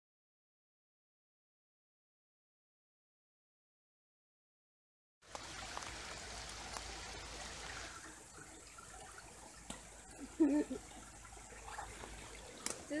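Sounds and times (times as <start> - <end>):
small stream running: 5.2 - 13.0.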